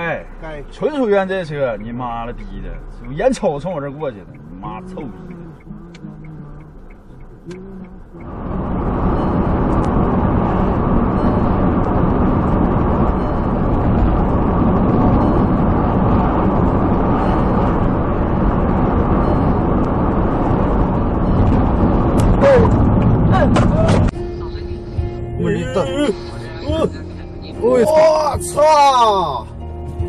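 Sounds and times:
car road and engine noise: 0.0 - 30.0.

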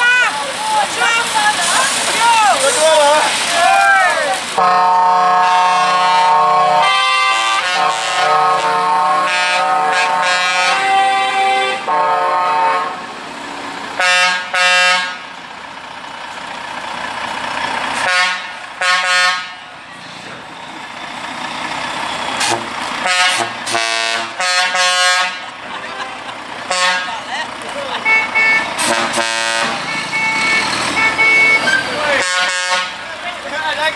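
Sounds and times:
truck engines running: 0.0 - 33.9
truck air horns: 4.6 - 13.1, 14.0 - 15.3, 18.0 - 19.8, 22.3 - 27.3, 28.0 - 33.1.

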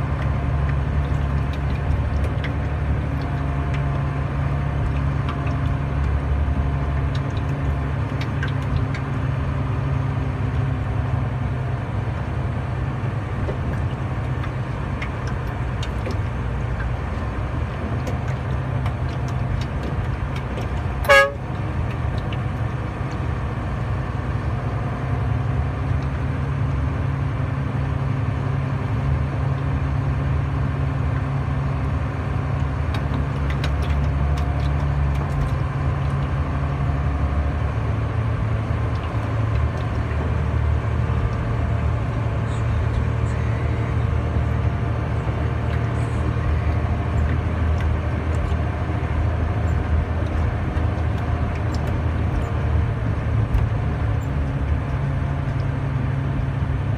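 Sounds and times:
truck diesel engine running: 0.0 - 56.9
truck horn toot: 21.0 - 21.5.

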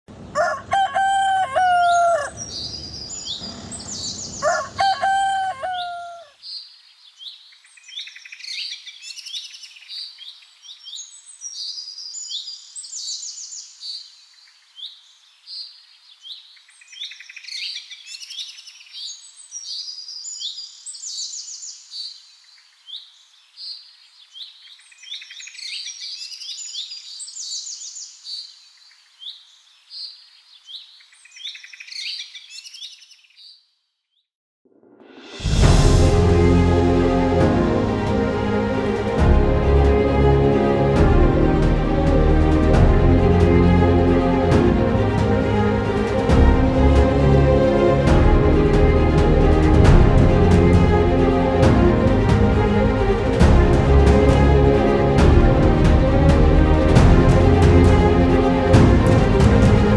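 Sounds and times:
rooster crowing: 0.3 - 2.7, 4.3 - 6.4
small birds chirping: 2.1 - 4.8, 5.8 - 34.3.

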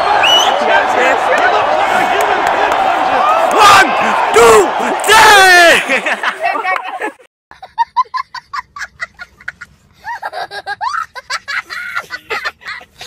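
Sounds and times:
child laughing: 6.1 - 13.0.

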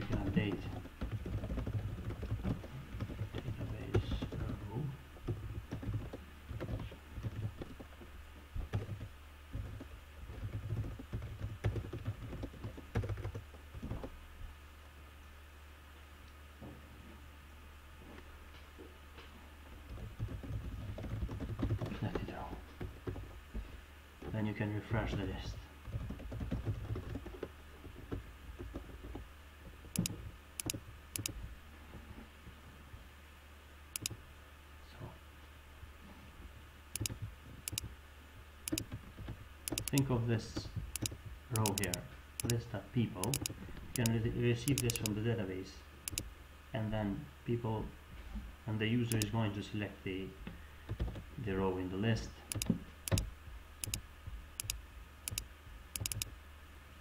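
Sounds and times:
low steady hum: 0.0 - 57.0
computer keyboard typing: 0.1 - 4.7, 5.3 - 7.8, 8.7 - 13.4, 19.9 - 22.3, 25.9 - 27.3, 29.9 - 31.4, 37.0 - 37.9, 38.7 - 39.0, 39.6 - 40.1, 40.9 - 42.6, 43.2 - 45.2, 46.1 - 46.3, 49.1 - 49.3, 52.5 - 54.0, 54.6 - 55.4, 56.0 - 56.3
computer mouse double clicks: 30.0 - 31.3, 40.9 - 42.6, 43.3 - 44.1, 44.7 - 45.1, 49.1 - 49.3, 52.5 - 53.2, 56.0 - 56.3.

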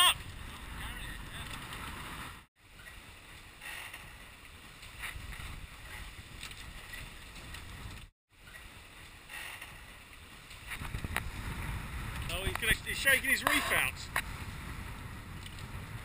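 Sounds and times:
wind on microphone: 4.9 - 8.1, 10.6 - 16.0.

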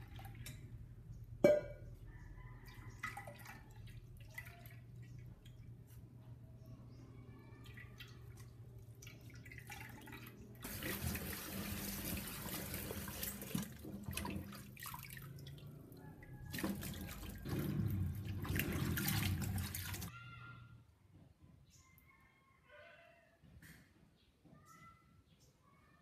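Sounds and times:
water running from tap: 9.2 - 15.8, 16.5 - 20.1.

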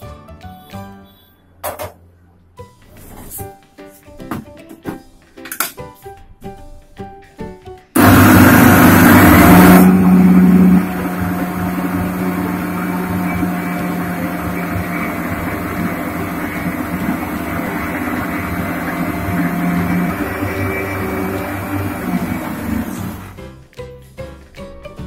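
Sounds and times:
mixer grinder grinding spices: 8.0 - 23.4.

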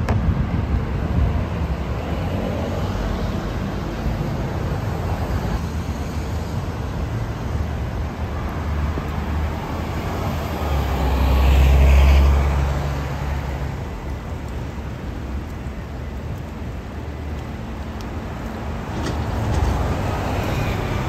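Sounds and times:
bus engine rumble passing: 0.0 - 21.0
city street traffic: 0.0 - 21.0.

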